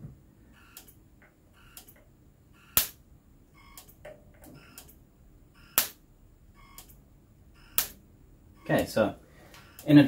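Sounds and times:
electric fence sparking snaps: 0:02.8 - 0:03.0, 0:05.8 - 0:06.0, 0:07.8 - 0:08.0.

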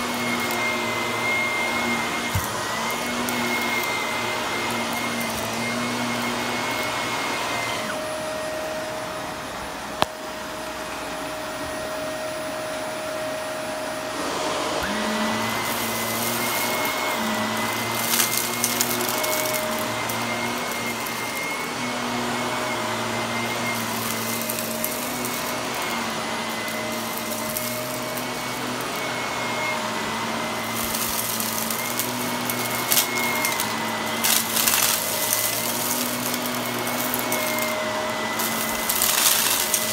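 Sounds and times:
vacuum cleaner motor whine: 0:00.0 - 0:39.9
debris crackling in vacuum: 0:15.4 - 0:21.8, 0:23.4 - 0:29.0, 0:30.6 - 0:39.9.

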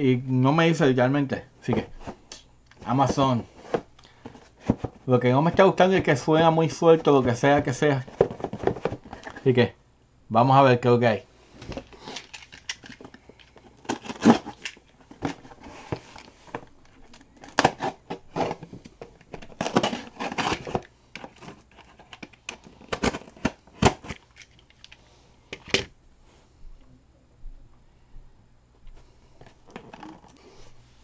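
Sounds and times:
cardboard box ripping: 0:19.6 - 0:20.8.

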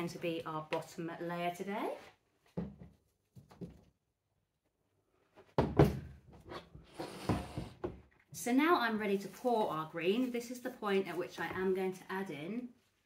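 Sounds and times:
plastic jugs knocking: 0:02.5 - 0:03.9, 0:05.5 - 0:06.4
wooden mould scraping tabletop: 0:06.4 - 0:08.0.

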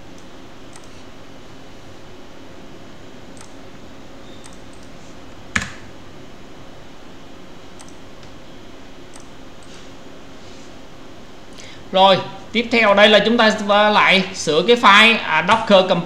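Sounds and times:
keyboard keystroke clicks: 0:00.2 - 0:01.0, 0:03.4 - 0:03.6, 0:04.4 - 0:04.9, 0:07.8 - 0:08.0, 0:09.1 - 0:09.7.

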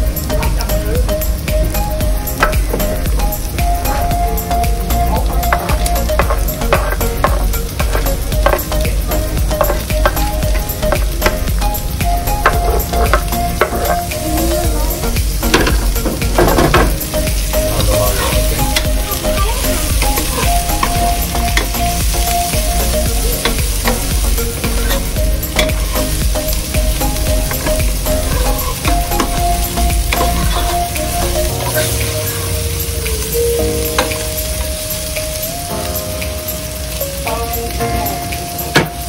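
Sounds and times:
vegetables sizzling in a pot: 0:00.0 - 0:39.0
wooden spoon knocking on pot: 0:05.2 - 0:14.1.

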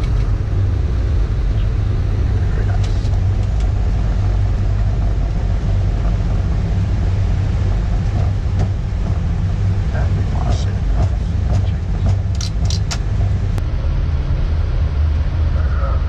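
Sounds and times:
jet engine and runway rumble: 0:00.0 - 0:16.0.

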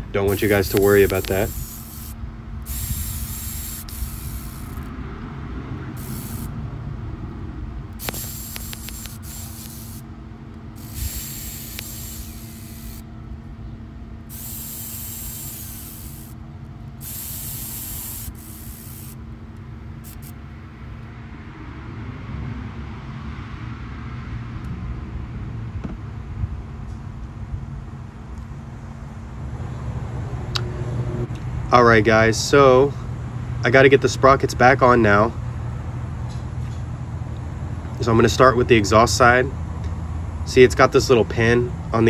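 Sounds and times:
bursts of hissing spray: 0:00.0 - 0:04.9, 0:05.9 - 0:06.6, 0:08.0 - 0:10.1, 0:10.7 - 0:13.0, 0:14.3 - 0:16.4, 0:17.0 - 0:19.2, 0:20.0 - 0:20.4.

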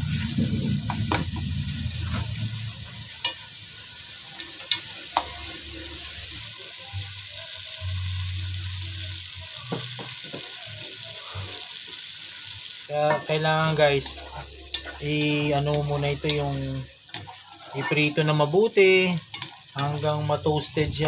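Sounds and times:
bacon sizzling in a pot: 0:00.0 - 0:21.0.

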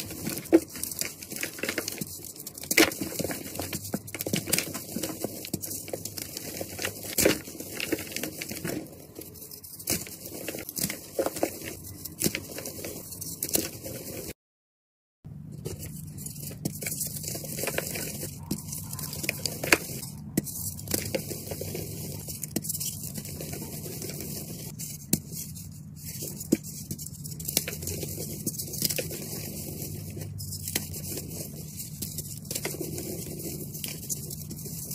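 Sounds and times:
hands crushing chalk chunks: 0:00.0 - 0:13.7.

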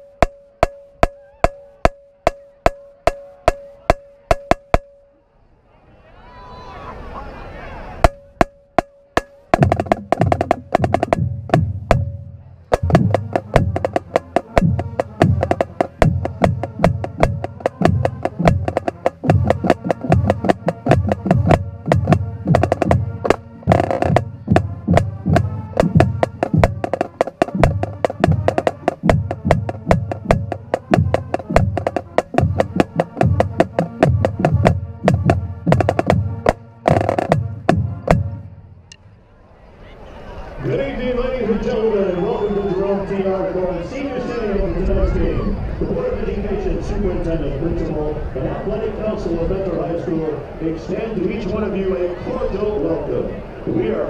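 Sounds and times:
drum line playing cadence: 0:00.0 - 0:05.1, 0:08.0 - 0:38.6.

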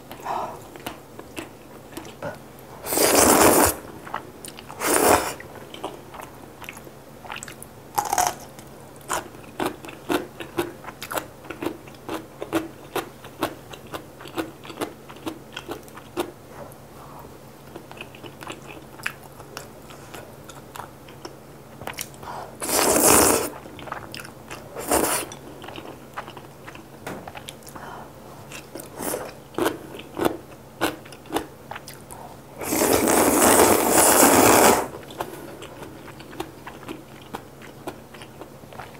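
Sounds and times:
loud slurping: 0:02.8 - 0:03.8, 0:04.8 - 0:05.4, 0:22.6 - 0:23.6, 0:24.8 - 0:25.3, 0:32.6 - 0:35.0.

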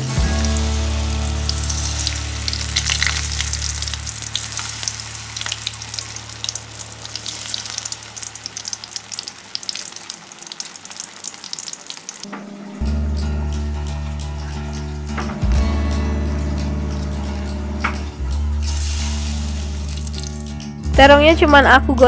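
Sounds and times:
food sizzling in hot oil: 0:00.0 - 0:12.6, 0:18.5 - 0:20.7.

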